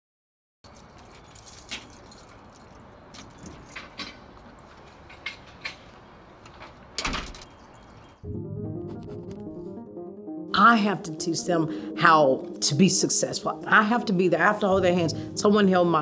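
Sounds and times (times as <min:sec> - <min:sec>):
keys jingling: 0:00.6 - 0:04.9
door shutting thud: 0:07.0 - 0:07.5.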